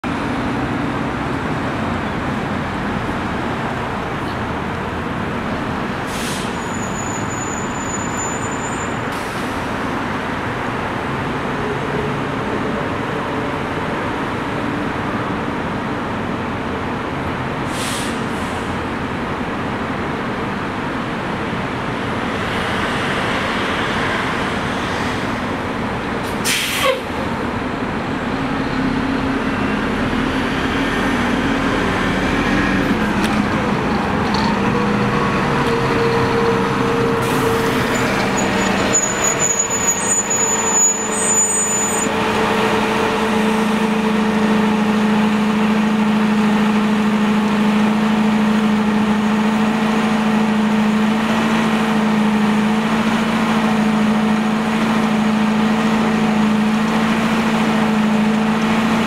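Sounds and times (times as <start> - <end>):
bus engine idling: 0.0 - 59.0
air hiss burst: 26.4 - 27.0.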